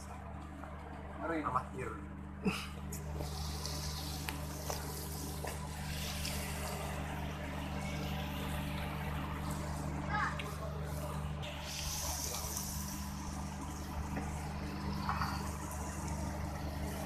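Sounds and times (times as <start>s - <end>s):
low machinery hum: 0.0s - 17.0s.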